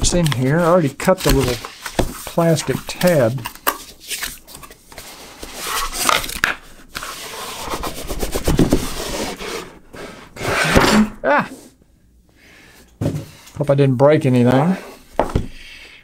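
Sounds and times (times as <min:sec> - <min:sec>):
cardboard scraping and rubbing: 0:00.0 - 0:11.2
person exclaiming: 0:10.9 - 0:11.7.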